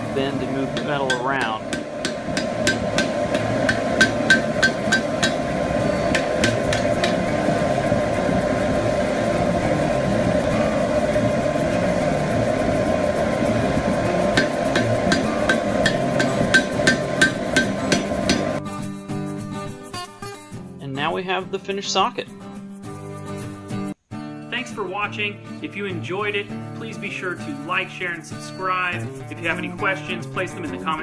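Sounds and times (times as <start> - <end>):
steady background hum: 0.0 - 18.6
hammer blows on anvil: 0.2 - 7.6, 13.9 - 18.6.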